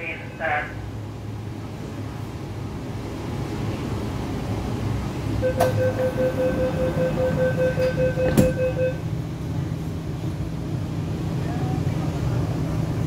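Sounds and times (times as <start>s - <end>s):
train rumble: 0.0s - 13.0s
rapid warning beeps: 5.4s - 9.0s
sliding doors banging shut: 7.8s - 8.8s.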